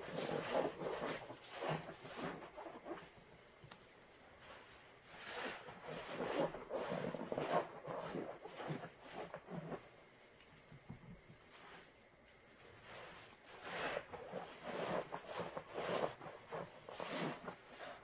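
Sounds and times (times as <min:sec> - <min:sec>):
sponges squelching and foam crackling: 0:00.0 - 0:03.2, 0:04.4 - 0:09.9, 0:12.7 - 0:18.0.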